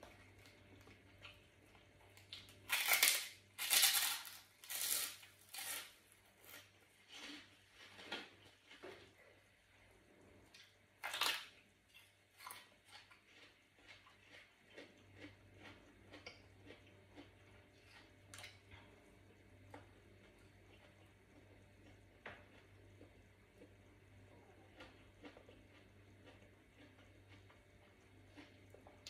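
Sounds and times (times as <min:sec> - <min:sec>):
wet chewing: 0:10.6 - 0:23.8, 0:24.6 - 0:29.0.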